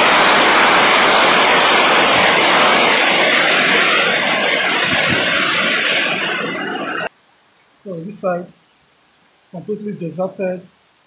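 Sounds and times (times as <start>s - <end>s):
heavy rain pouring: 0.0s - 7.1s.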